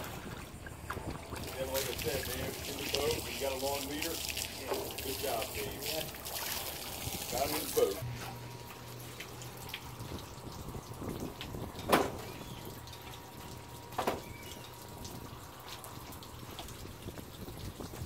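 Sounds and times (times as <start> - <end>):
sharp water splashes: 0.0 - 8.0
water dripping and splashing: 0.0 - 8.0, 8.6 - 18.0
low steady hum: 0.0 - 18.0.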